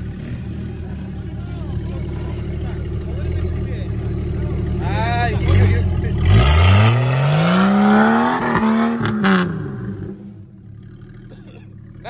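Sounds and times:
engine revving hard: 5.3 - 10.3.

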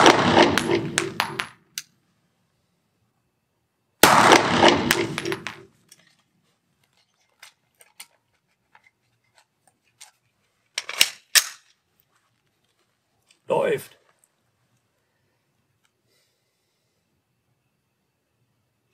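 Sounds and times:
pistol shots echoing indoors: 0.0 - 1.5, 4.0 - 5.7.

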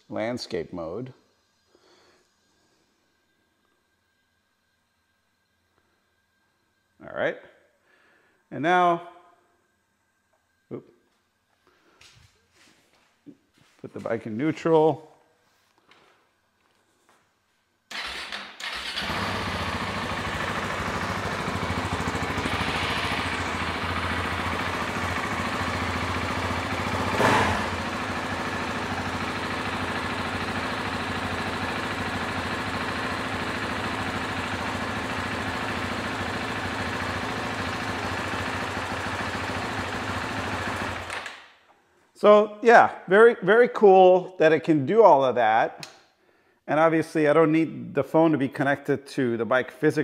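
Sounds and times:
electric starter cranking: 17.9 - 41.5
motorcycle engine idling: 18.0 - 41.1.

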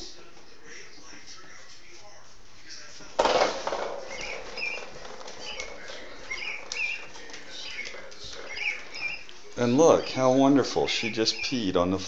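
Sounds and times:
goat hooves tapping on wooden floor: 3.2 - 12.0
high chirping squeaks: 4.0 - 12.0.

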